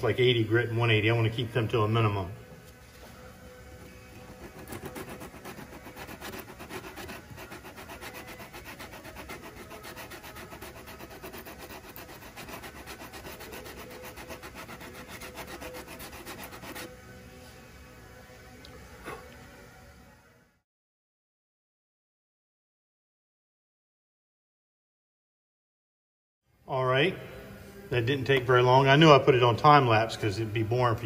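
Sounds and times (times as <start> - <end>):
sandpaper sanding body filler: 4.3 - 16.9.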